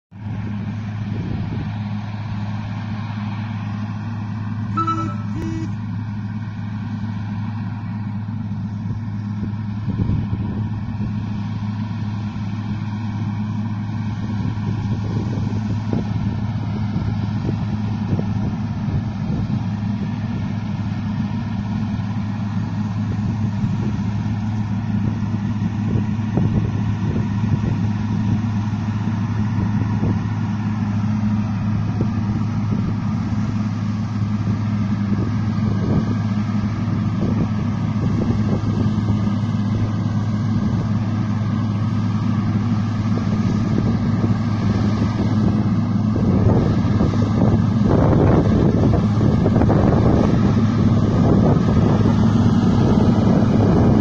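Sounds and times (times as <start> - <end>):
distant tractor diesel engine: 0.1 - 54.0
short beeps: 4.8 - 5.8.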